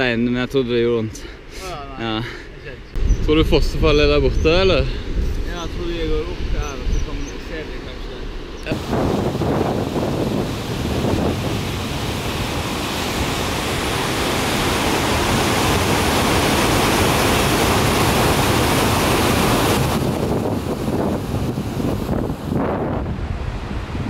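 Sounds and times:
wind buffeting microphone: 2.9s - 24.0s
rushing river water: 8.4s - 24.0s.

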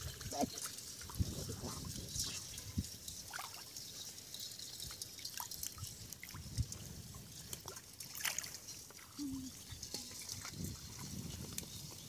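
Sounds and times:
muddy water splashing: 0.0s - 12.0s.

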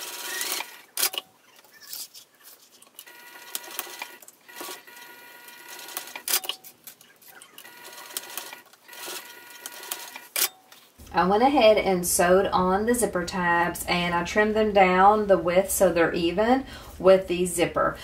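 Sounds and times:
sewing machine stitching: 0.0s - 1.2s, 3.0s - 6.6s, 7.2s - 10.3s
vinyl rustling: 10.6s - 11.1s.

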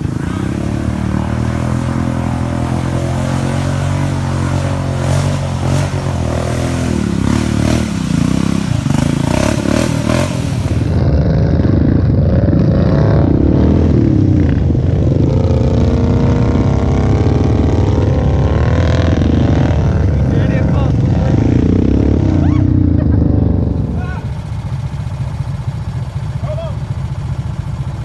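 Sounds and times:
mud and water spraying: 0.0s - 11.1s
atv engine revving: 0.0s - 28.0s
several atv engines revving: 0.0s - 28.0s.

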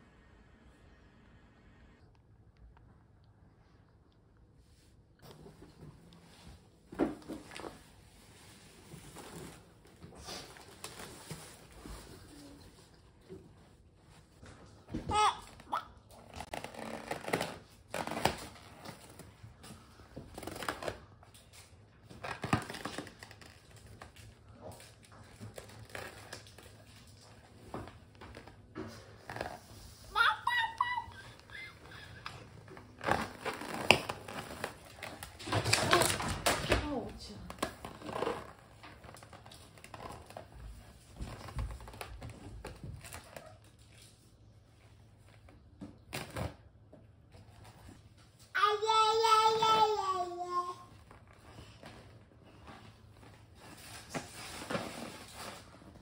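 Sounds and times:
hands rubbing a balloon: 16.3s - 19.1s, 29.0s - 35.2s.

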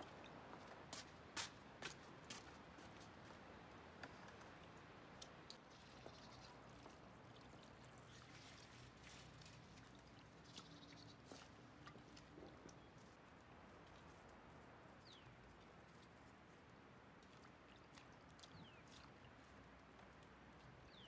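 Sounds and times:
light ticks of rinsing: 4.0s - 16.4s, 17.1s - 21.0s
small splashes: 4.6s - 12.8s.

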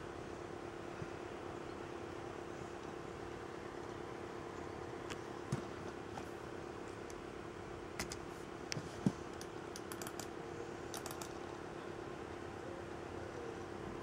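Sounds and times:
steady hum: 0.0s - 14.0s
computer keyboard clicks: 9.4s - 10.3s, 10.9s - 11.4s.

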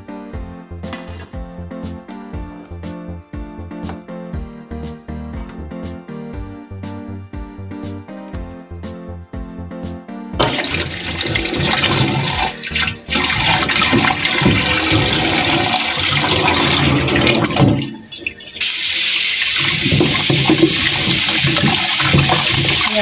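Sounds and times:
background music: 0.0s - 23.0s
tap running into steel bowl: 10.4s - 18.3s, 19.5s - 23.0s.

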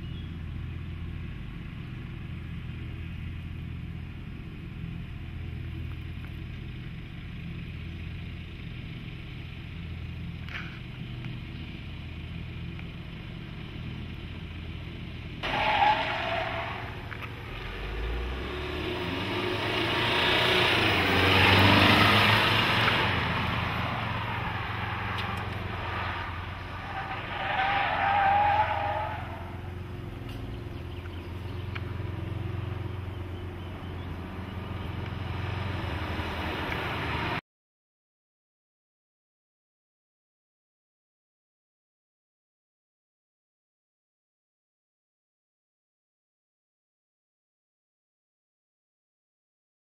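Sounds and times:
car driving on asphalt: 0.0s - 37.4s
car engine low hum: 0.0s - 37.4s
tyre squeals: 23.8s - 29.8s.

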